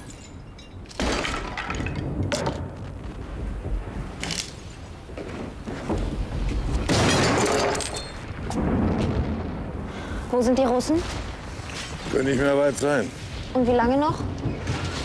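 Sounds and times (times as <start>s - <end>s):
booms and crashes: 6.8s - 15.0s.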